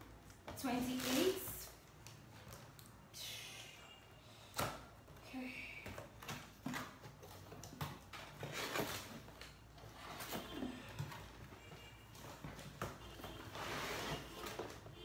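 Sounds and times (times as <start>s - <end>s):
cardboard box scraping and rustling: 13.4s - 14.7s.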